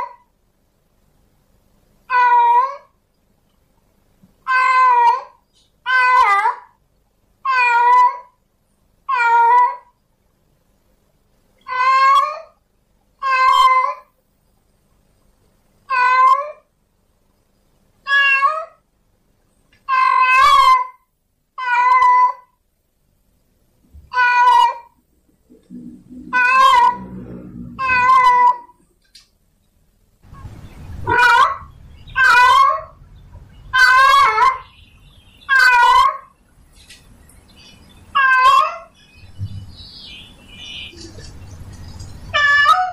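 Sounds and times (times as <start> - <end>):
cat meowing: 4.5 - 6.7, 7.4 - 8.3, 9.1 - 9.9, 11.7 - 12.6, 13.2 - 14.1, 15.9 - 16.6, 18.1 - 18.8, 19.9 - 21.0, 21.6 - 22.5, 24.1 - 25.0, 26.2 - 28.8, 31.1 - 33.0, 33.8 - 34.6, 35.5 - 36.3, 38.2 - 38.9, 42.3 - 42.9
low rumbling noise: 25.0 - 29.0, 29.8 - 33.8, 38.9 - 42.9.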